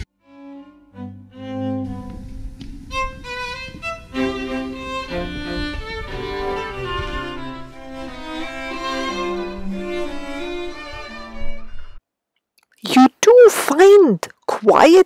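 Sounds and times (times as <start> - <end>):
bowed violin melody: 0.0 - 12.0
lower string accompaniment: 0.0 - 12.0.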